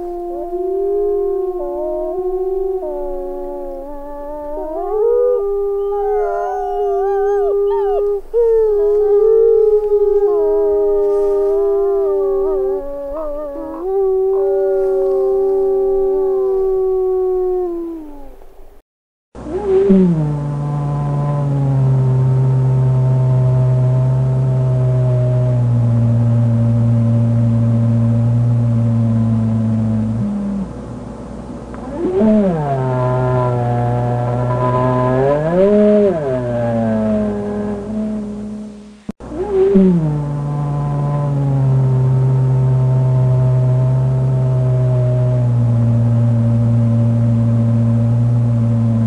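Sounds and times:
wolves howling in chorus: 0.1s - 18.0s, 31.9s - 37.3s.

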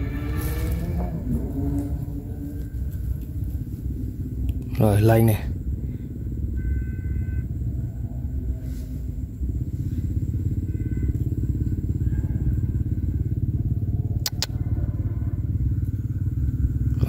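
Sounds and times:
small engine running: 0.0s - 17.0s
sharp clicks: 14.2s - 14.6s.

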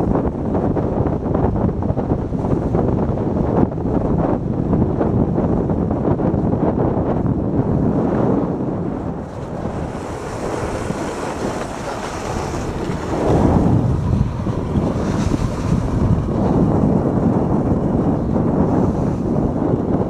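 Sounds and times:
wind buffeting microphone: 0.0s - 20.0s
luge runners scraping over snow: 9.4s - 17.3s.

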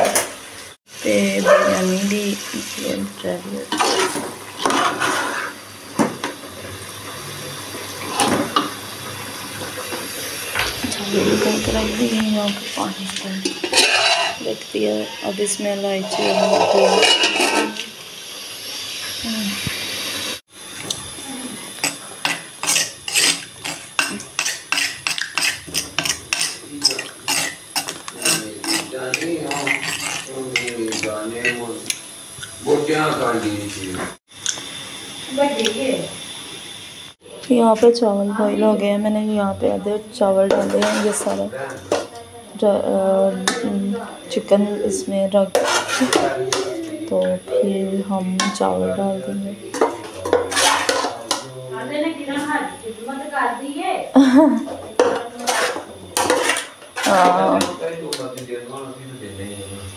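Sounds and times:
ladle scraping through thick gravy: 3.7s - 5.6s, 16.0s - 17.7s, 22.6s - 31.6s, 45.6s - 46.2s, 50.2s - 51.2s
ladle clinking against pot: 13.4s - 14.4s.

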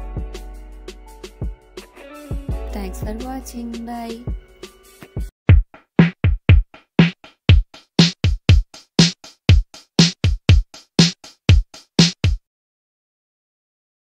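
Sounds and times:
drum machine beat: 2.3s - 3.3s, 5.0s - 12.4s.

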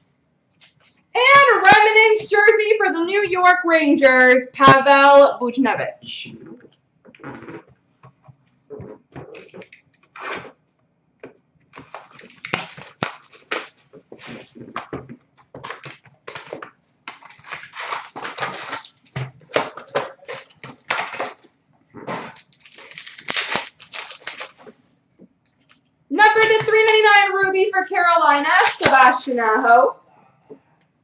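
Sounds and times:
card pack wrappers crinkling and tearing: 11.8s - 21.5s, 22.1s - 24.8s, 28.2s - 29.6s.

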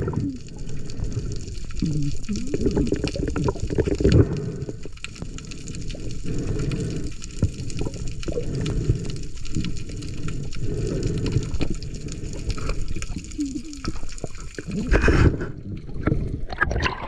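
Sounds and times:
sea water rushing and sloshing: 0.0s - 17.0s.

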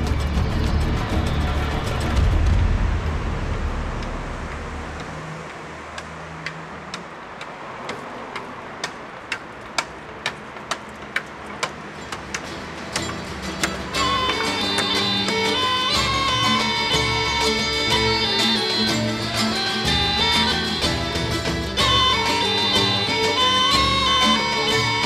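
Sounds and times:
music: 0.0s - 4.4s, 12.0s - 25.0s
shoes clicking on stone paving: 4.5s - 25.0s.

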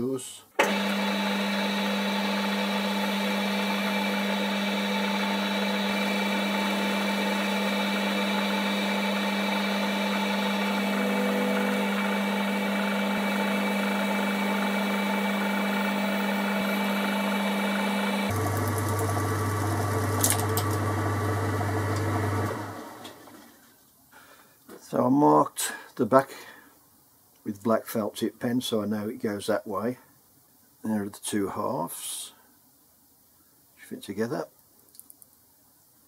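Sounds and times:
lathe humming: 0.6s - 23.3s.

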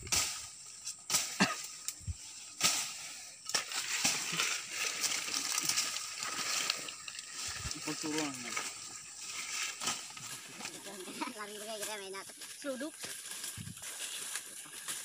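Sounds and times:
brush being trampled: 0.0s - 15.0s
leaves rustling: 0.0s - 15.0s.

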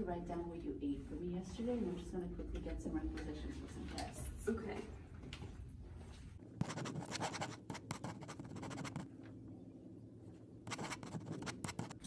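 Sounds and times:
pen scratching on paper: 6.6s - 9.1s, 10.7s - 12.0s.

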